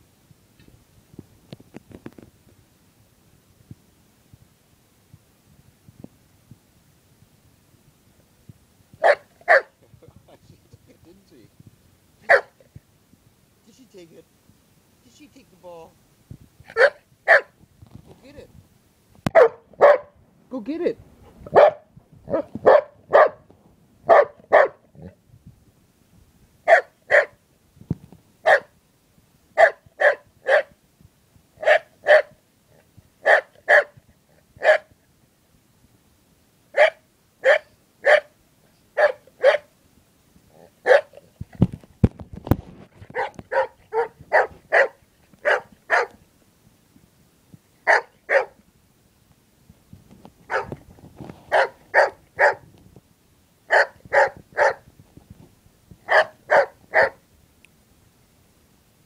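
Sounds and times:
dog barking: 9.0s - 9.8s, 12.2s - 12.6s, 16.7s - 17.6s, 19.3s - 20.2s, 21.5s - 25.2s, 26.7s - 27.4s, 28.4s - 28.7s, 29.6s - 30.8s, 31.6s - 32.4s, 33.2s - 34.0s, 34.6s - 34.9s, 36.7s - 38.4s, 39.0s - 39.7s, 40.6s - 41.2s, 43.1s - 46.2s, 47.8s - 48.6s, 50.5s - 50.7s, 51.5s - 52.7s, 53.7s - 54.8s, 56.0s - 57.2s.

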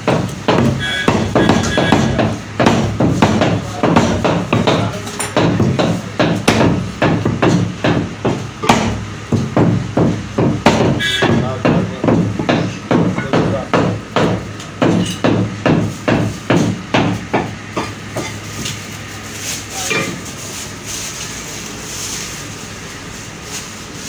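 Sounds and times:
cleaver chopping meat on wooden block: 0.0s - 18.8s.

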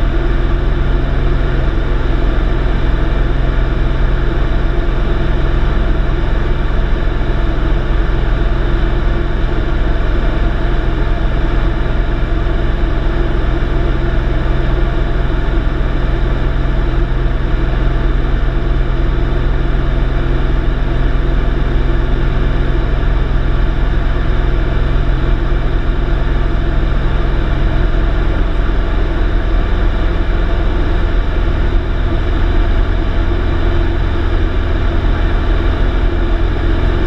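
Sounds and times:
airplane engine and propeller droning: 0.0s - 37.0s.

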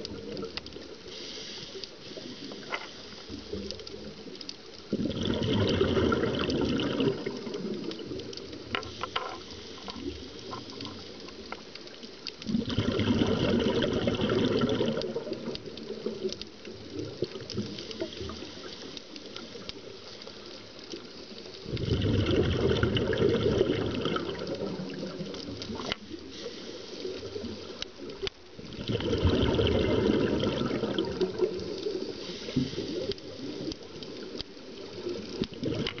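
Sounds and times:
bubbling exhalation: 4.9s - 8.0s, 12.5s - 15.5s, 21.6s - 25.8s, 28.6s - 31.7s, 35.5s - 36.0s
diver breathing through regulator: 26.2s - 27.3s.

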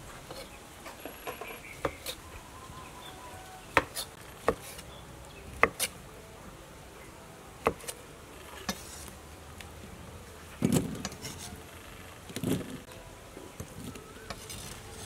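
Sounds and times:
cleaver chopping on wooden board: 5.6s - 5.9s.

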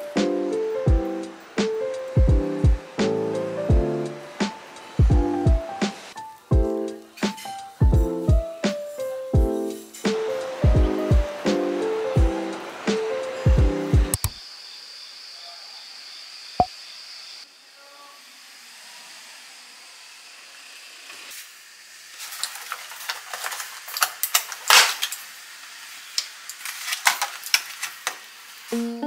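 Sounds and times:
steady hiss: 0.0s - 14.2s, 21.0s - 29.0s
light ukulele music: 28.7s - 29.0s.

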